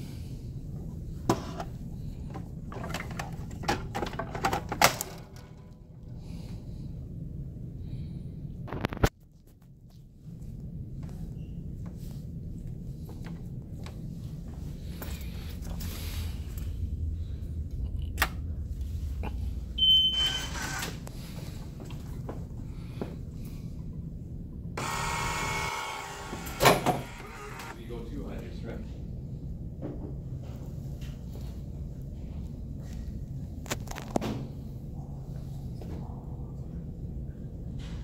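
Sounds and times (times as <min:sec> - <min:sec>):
steady low hum: 0:00.0 - 0:38.0
low steady rumble: 0:05.4 - 0:08.7, 0:09.3 - 0:24.8, 0:27.8 - 0:33.7
vending machine beep: 0:19.8 - 0:20.9.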